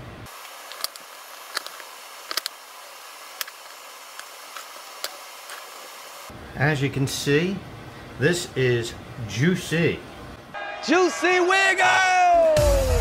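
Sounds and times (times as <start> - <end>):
steady hiss: 0.2 - 10.4.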